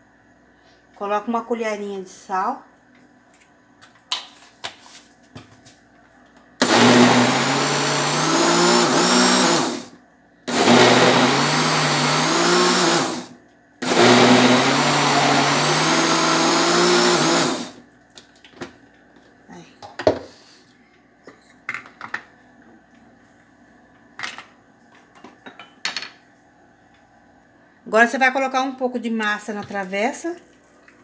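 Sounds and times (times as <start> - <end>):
blender motor running: 6.6 - 17.8.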